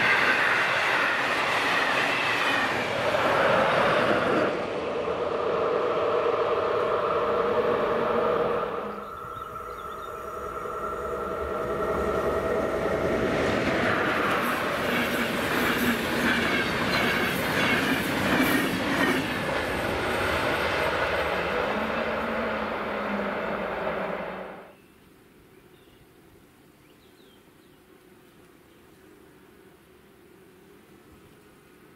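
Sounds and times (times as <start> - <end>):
train passing: 0.0 - 24.8
steady hum with held tones: 4.6 - 14.8.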